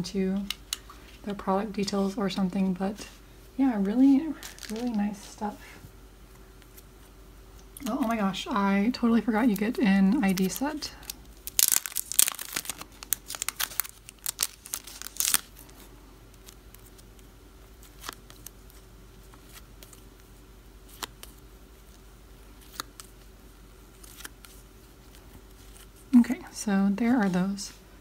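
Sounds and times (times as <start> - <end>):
plastic packet crinkling and tearing: 4.4 - 5.0, 9.4 - 17.2.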